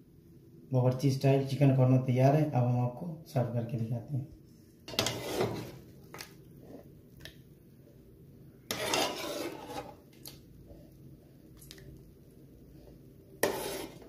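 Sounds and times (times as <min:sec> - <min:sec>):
metal ladle scraping metal pot: 0:04.9 - 0:05.8, 0:08.7 - 0:10.0, 0:13.4 - 0:14.0.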